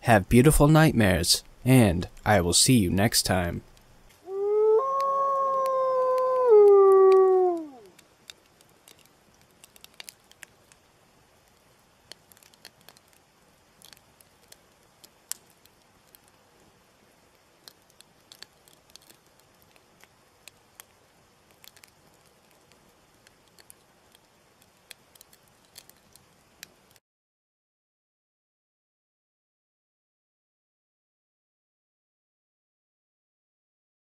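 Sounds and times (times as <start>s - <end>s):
low hiss: 0.0s - 27.0s
campfire crackling: 0.3s - 27.0s.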